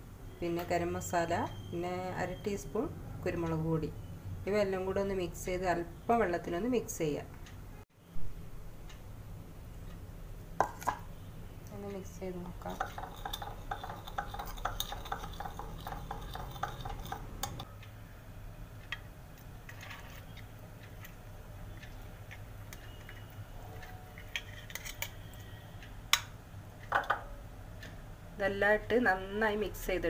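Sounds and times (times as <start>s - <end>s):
spoon stirring paste: 12.3s - 17.7s, 18.8s - 25.5s
spoon clinking against glass: 12.7s - 17.6s
steel plate clinking on bowl: 12.7s - 17.6s.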